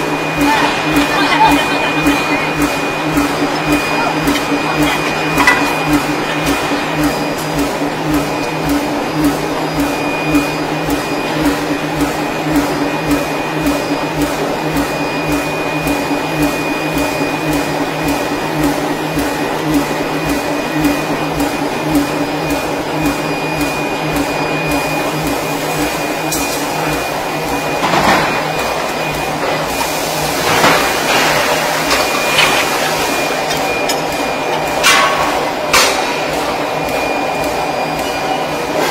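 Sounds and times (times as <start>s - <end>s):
regular mechanical pulse: 0.0s - 29.9s
ring rolling machine drone: 0.0s - 38.9s
thin high whine: 0.0s - 38.9s.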